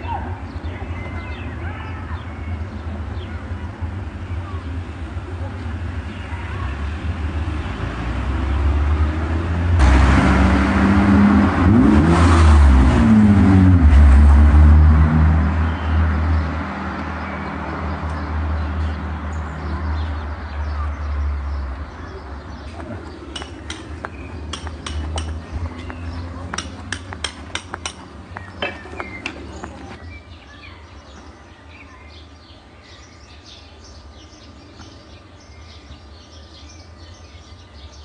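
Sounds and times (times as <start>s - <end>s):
sharp irregular clicks and clinks: 23.3s - 23.9s.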